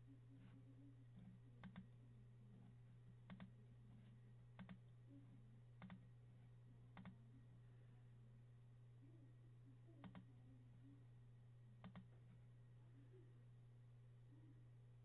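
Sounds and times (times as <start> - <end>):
low electrical hum: 0.0 - 15.0
faint computer mouse clicks: 0.4 - 5.0, 5.8 - 6.2, 6.9 - 7.2, 10.0 - 10.3, 11.8 - 12.4.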